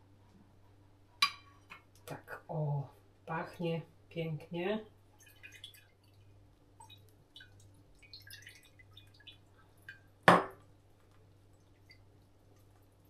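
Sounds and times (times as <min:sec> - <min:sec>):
liquid dripping: 0:05.1 - 0:13.0.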